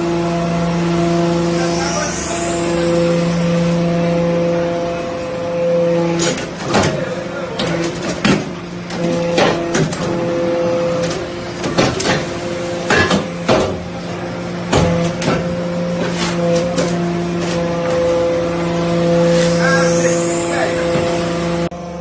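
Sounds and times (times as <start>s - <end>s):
hydraulic unit humming: 0.0s - 22.0s
metallic clanks and knocks: 6.2s - 10.4s, 11.0s - 13.9s, 14.7s - 18.2s.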